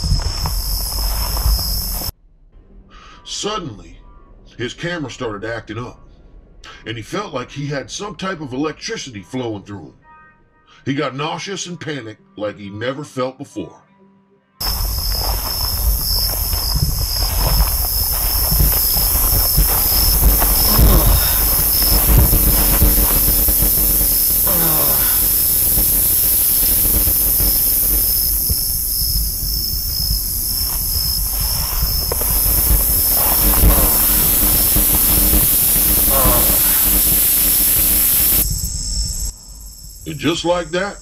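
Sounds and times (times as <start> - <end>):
electronic hiss and static: 0.0 - 2.1, 14.6 - 39.3.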